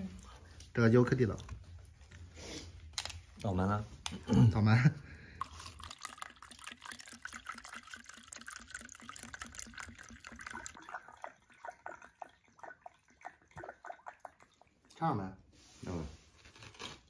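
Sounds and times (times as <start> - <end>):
liquor pouring into glass: 5.4 - 15.0.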